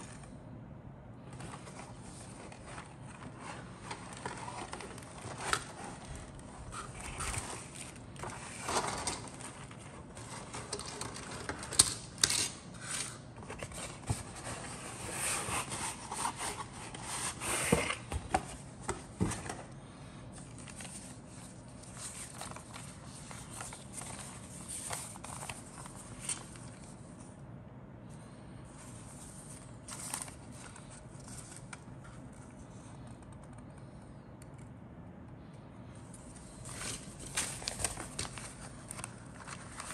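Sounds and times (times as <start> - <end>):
plastic bags rustling and crinkling: 1.3 - 27.2, 36.2 - 39.9.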